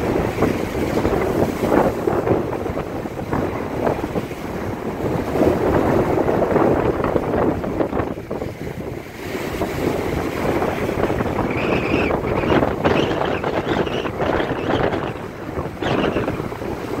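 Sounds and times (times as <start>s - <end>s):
foam washing up shore: 0.0s - 17.0s
surf breaking: 0.0s - 17.0s
wind buffeting microphone: 0.0s - 17.0s.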